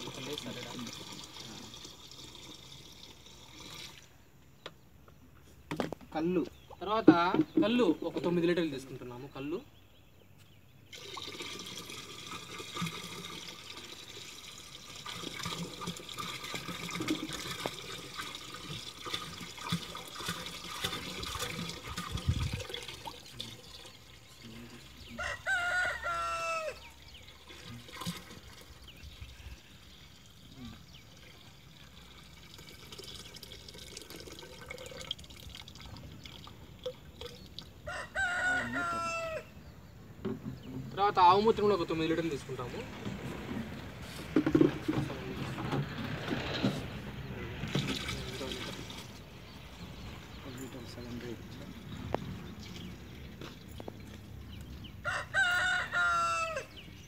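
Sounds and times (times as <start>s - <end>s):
liquid pouring into plastic drum: 0.0s - 4.2s, 10.9s - 24.9s, 27.0s - 37.8s, 44.3s - 49.2s
rooster crowing: 25.1s - 27.0s, 37.8s - 39.5s, 55.0s - 56.8s.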